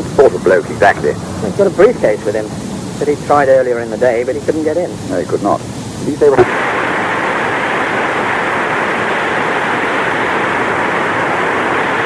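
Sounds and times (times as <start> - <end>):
static hiss: 0.0 - 12.0
speech: 0.2 - 6.4.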